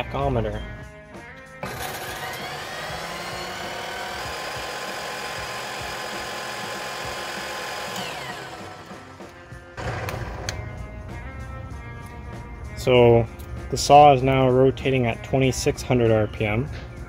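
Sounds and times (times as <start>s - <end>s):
saw motor whining: 1.6s - 10.6s.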